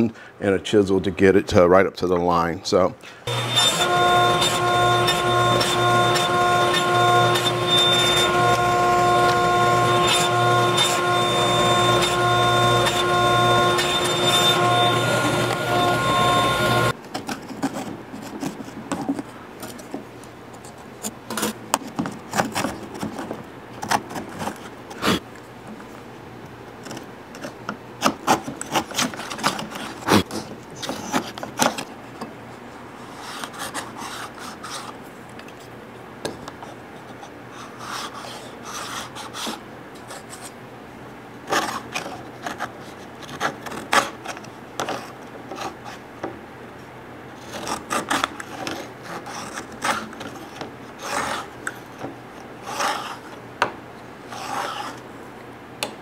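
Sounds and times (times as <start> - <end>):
hand tools rasping wood: 3.3 - 16.9.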